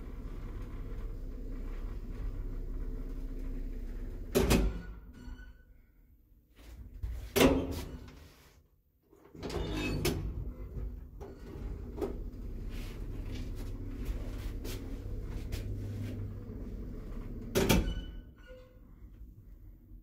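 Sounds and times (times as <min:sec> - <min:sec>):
low motor hum: 0:00.0 - 0:04.6, 0:10.3 - 0:18.2
lift door shutting with clunk: 0:04.2 - 0:05.3, 0:15.2 - 0:18.7.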